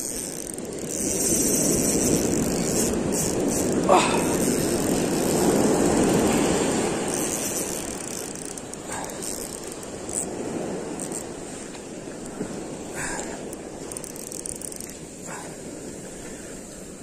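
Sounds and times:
ocean wave breaking on sand: 0:01.1 - 0:14.0.

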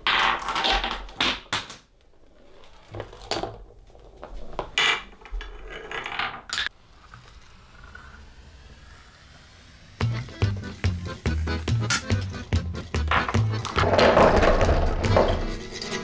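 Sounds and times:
small objects clacking on wood: 0:00.0 - 0:01.9, 0:13.1 - 0:15.5.

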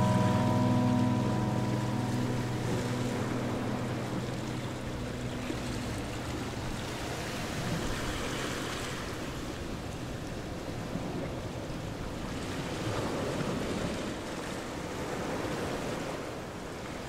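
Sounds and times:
background music: 0:00.0 - 0:07.8.

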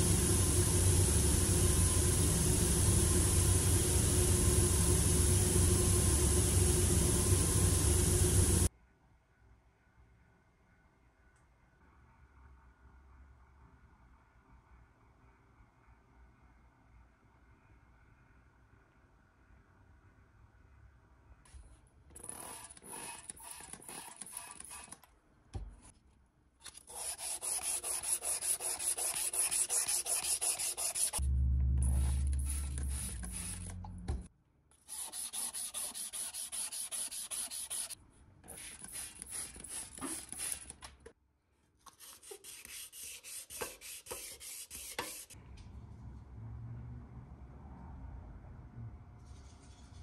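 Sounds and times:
sandpaper rubbing on metal: 0:26.9 - 0:31.2, 0:31.8 - 0:33.8, 0:34.9 - 0:40.7, 0:42.0 - 0:45.4
low hum: 0:31.2 - 0:34.3.

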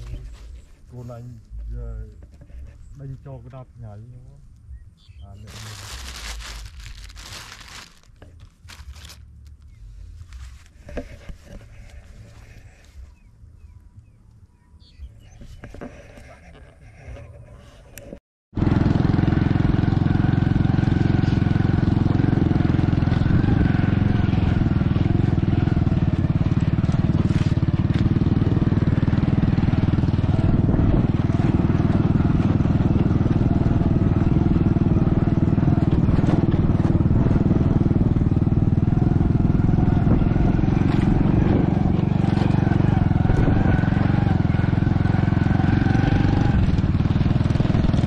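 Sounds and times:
small engine running: 0:05.4 - 0:09.2, 0:18.6 - 0:48.0.

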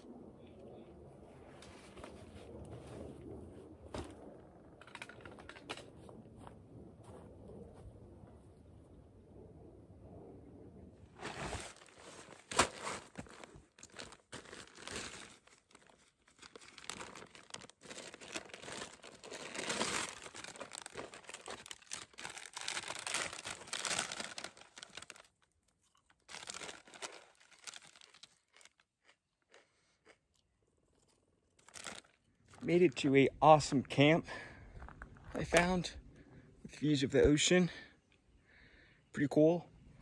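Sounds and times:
faint crunches: 0:11.2 - 0:33.0
chip bag tearing open: 0:11.5 - 0:25.4, 0:26.2 - 0:28.8
plastic bags crinkling: 0:11.5 - 0:25.4, 0:26.0 - 0:28.8, 0:31.6 - 0:32.2.

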